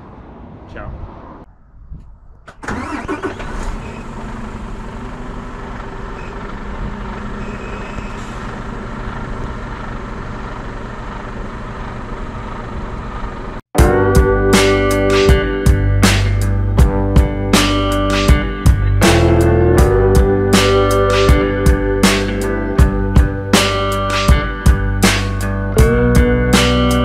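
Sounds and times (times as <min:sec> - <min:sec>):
truck diesel engine idling: 0:04.0 - 0:13.6.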